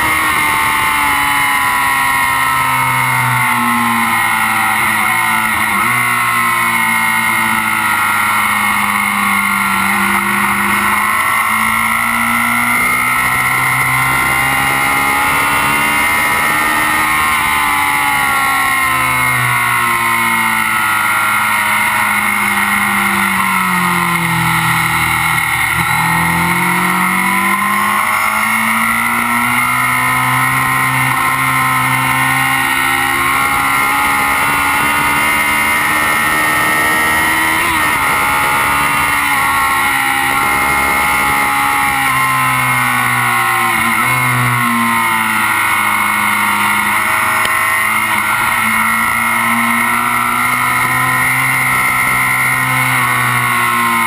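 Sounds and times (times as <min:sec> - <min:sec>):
motorcycle engine revving: 0:00.0 - 0:54.0
wind and road rush: 0:00.0 - 0:54.0.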